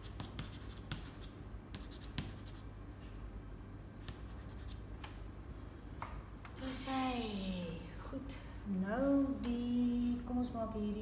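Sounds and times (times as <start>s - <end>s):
pastel scratching on paper: 0.0s - 2.6s, 4.1s - 4.8s.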